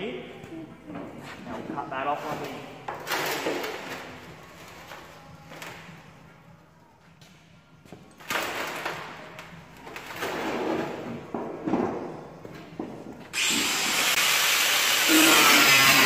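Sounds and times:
power tool on sheet steel: 0:13.4 - 0:16.0.

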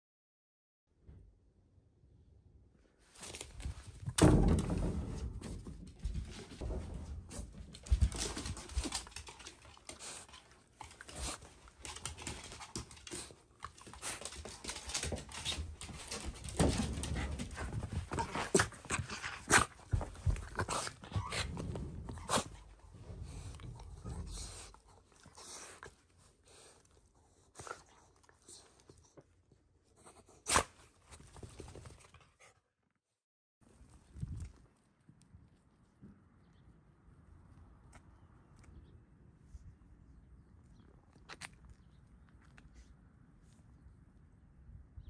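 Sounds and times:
dog panting and snuffling: 0:07.3 - 0:29.2.

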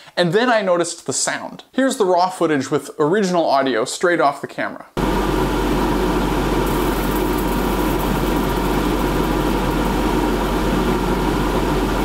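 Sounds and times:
freezer humming loudly: 0:05.0 - 0:12.0
high crackling of freezing ice: 0:06.7 - 0:10.3.

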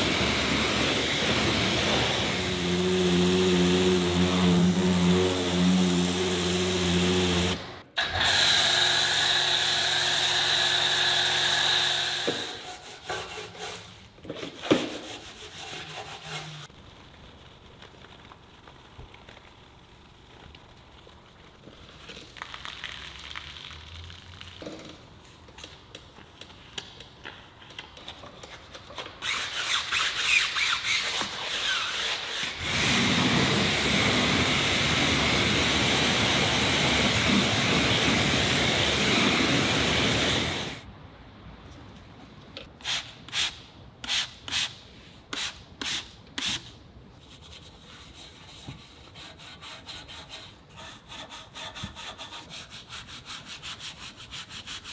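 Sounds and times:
pressure washer spray hissing: 0:00.0 - 0:07.7, 0:32.6 - 0:40.8
wet brush scrubbing a wheel: 0:29.2 - 0:40.8, 0:47.3 - 0:54.9.

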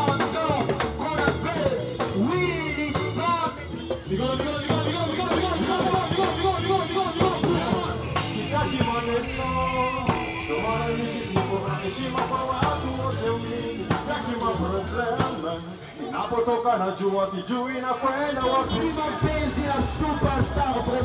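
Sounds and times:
rock band playing: 0:00.0 - 0:15.8
man singing into a microphone: 0:00.0 - 0:21.0.

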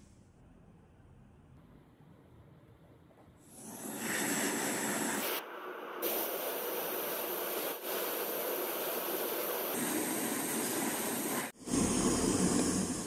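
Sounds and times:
blowtorch hissing: 0:03.5 - 0:13.0.

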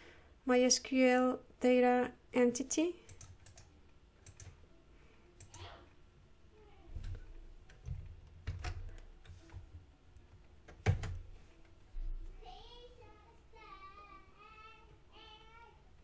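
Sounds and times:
computer mouse clicks: 0:03.0 - 0:04.6
keyboard keystrokes: 0:03.0 - 0:04.6, 0:07.0 - 0:09.1.

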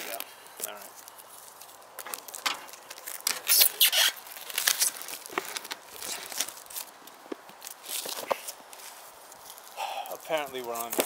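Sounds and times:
plastic shrink wrap tearing: 0:00.0 - 0:08.6.

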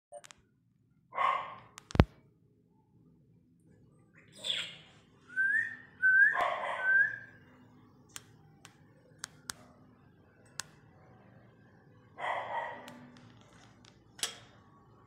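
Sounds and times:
sharp clicks: 0:01.8 - 0:02.1.

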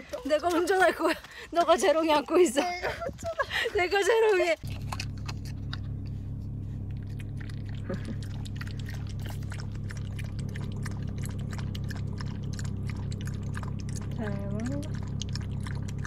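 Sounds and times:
dog lapping water: 0:03.8 - 0:16.0
low hum inside car: 0:04.5 - 0:16.0.

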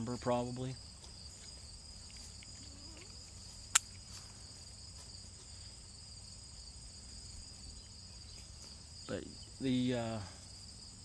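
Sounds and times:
insects chirping in grass: 0:00.0 - 0:11.0
sharp click: 0:03.7 - 0:04.0.

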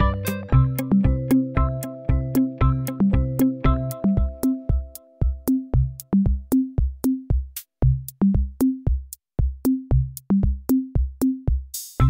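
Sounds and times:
short bass notes: 0:00.0 - 0:06.4
electronic drum-machine beat: 0:00.0 - 0:12.0.

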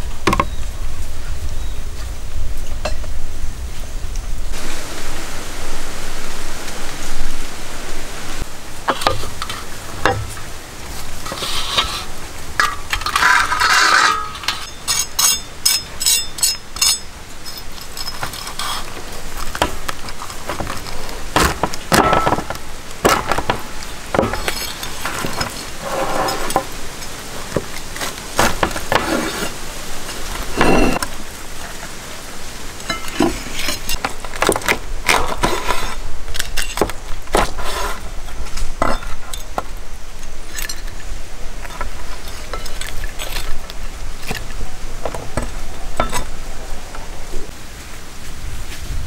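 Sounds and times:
sizzling hiss: 0:00.0 - 0:49.0
metal utensils clinking on pots: 0:11.3 - 0:20.6, 0:21.4 - 0:27.8, 0:30.4 - 0:31.1, 0:32.8 - 0:34.1.

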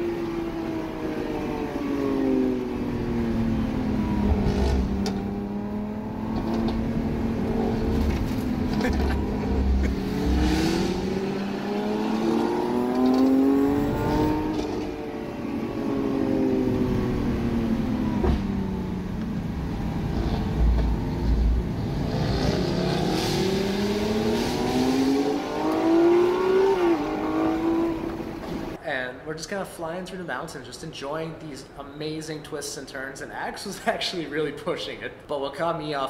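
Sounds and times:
car engine revving: 0:00.0 - 0:28.8.

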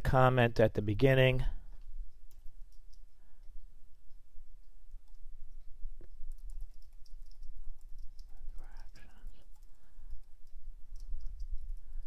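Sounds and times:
steady low hum: 0:00.0 - 0:12.0
keyboard keystrokes clicking: 0:06.0 - 0:11.7.

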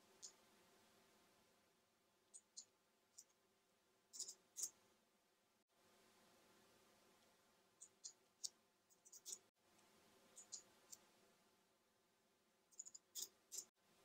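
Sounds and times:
keyboard and mouse clicks: 0:04.1 - 0:04.7.

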